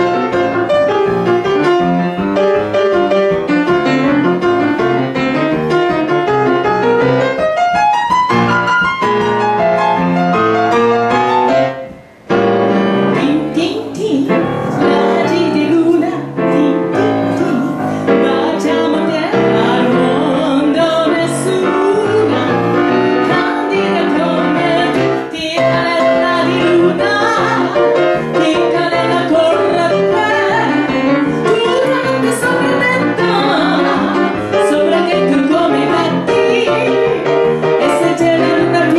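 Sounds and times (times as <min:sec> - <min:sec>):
grand piano: 0:00.0 - 0:38.9
woman singing: 0:13.1 - 0:38.9.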